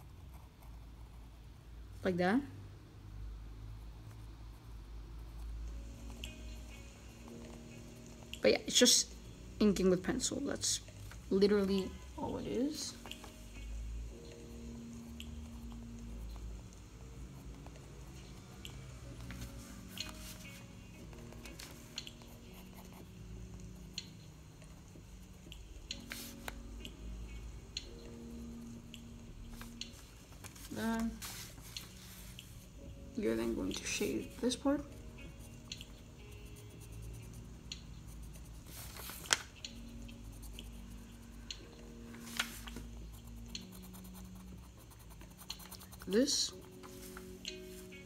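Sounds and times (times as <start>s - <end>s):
pencil lead ticks: 35.7s - 36.0s, 43.0s - 46.6s
pencil scratching on paper: 42.8s - 46.8s.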